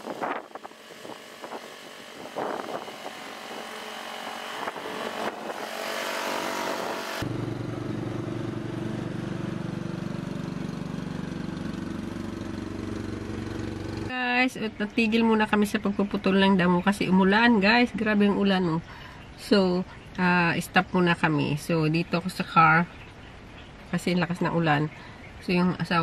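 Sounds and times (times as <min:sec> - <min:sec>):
ride-on lawn mower engine: 0:00.0 - 0:14.2.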